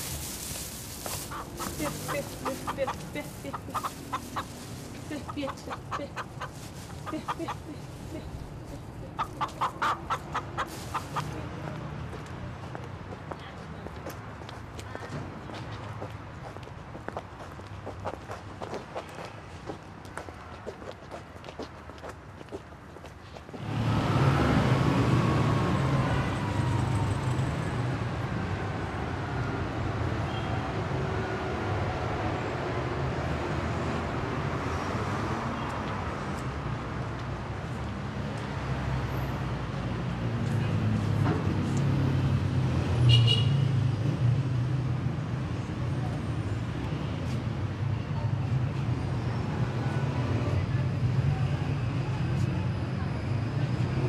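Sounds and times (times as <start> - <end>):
rumble of vehicle engines: 0.0 - 54.0
chickens clucking: 1.1 - 7.9, 8.6 - 11.4.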